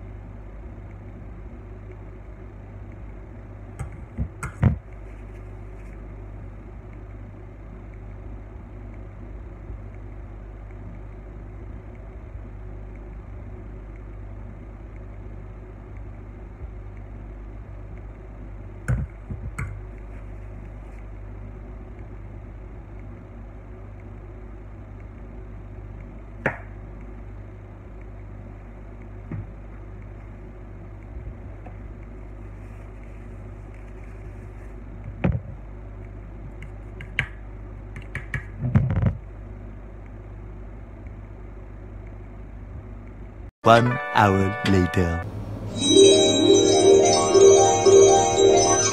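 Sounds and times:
sharp taps and clicks: 38.0s - 38.5s.

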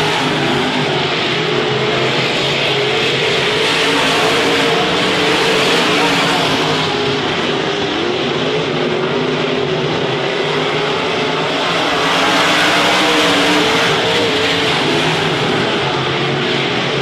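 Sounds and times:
race car engines revving: 0.0s - 17.0s.

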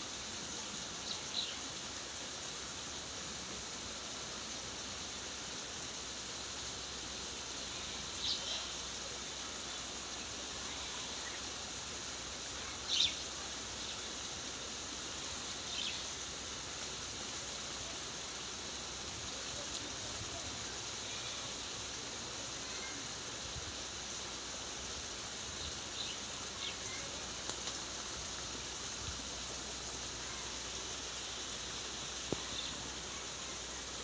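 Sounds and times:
flowing water rushing: 0.0s - 34.0s.

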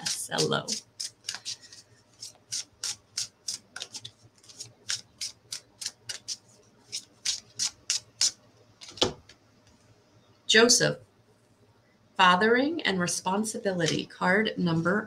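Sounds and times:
cards being shuffled: 0.0s - 9.2s.

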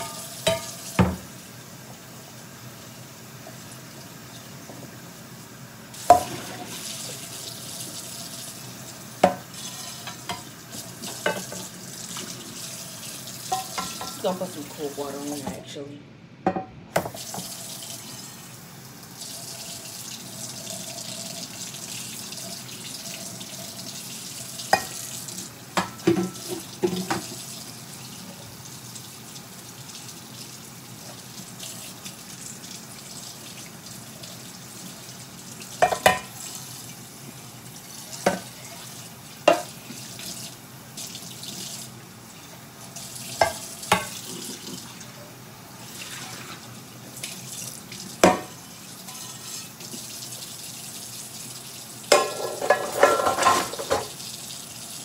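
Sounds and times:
tap water splashing on pan: 0.4s - 1.3s, 6.0s - 6.7s, 16.5s - 17.6s, 24.7s - 25.1s, 25.8s - 27.4s, 35.8s - 36.3s, 39.4s - 39.7s, 43.4s - 44.2s, 48.2s - 50.1s, 52.1s - 54.2s.

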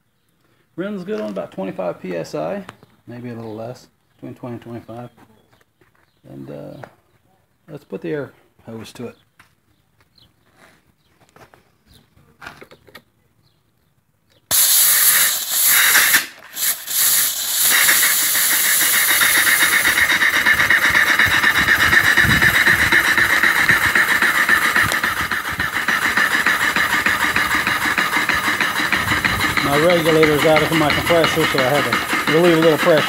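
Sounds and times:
compressed-air hiss: 14.5s - 33.0s
steam engine exhaust pulsing: 14.5s - 33.0s.

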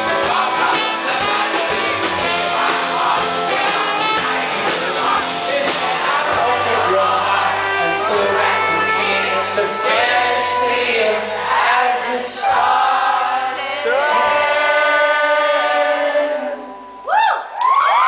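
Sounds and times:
live rock band playing: 0.0s - 11.3s
man singing into microphone: 0.0s - 13.0s.

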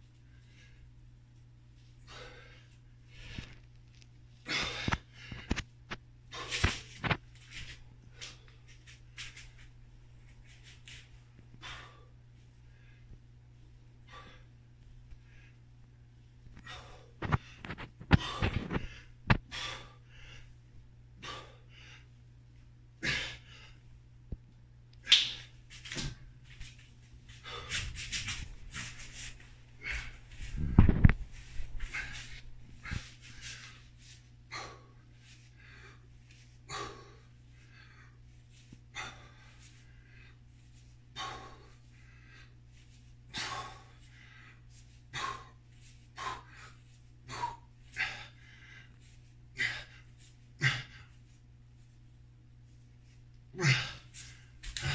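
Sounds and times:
steady low hum: 0.0s - 54.9s
man breathing hard: 2.0s - 3.7s, 4.4s - 5.6s, 11.5s - 13.2s, 14.0s - 15.7s, 16.5s - 22.2s, 27.3s - 51.2s, 53.5s - 54.9s.

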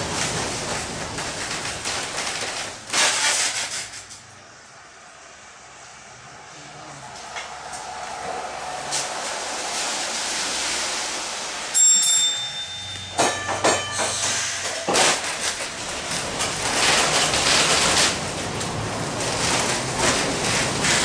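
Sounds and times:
streetcar wheels on rails: 0.0s - 21.0s
short high ring: 11.7s - 15.3s
sharp knocks: 13.1s - 14.2s.

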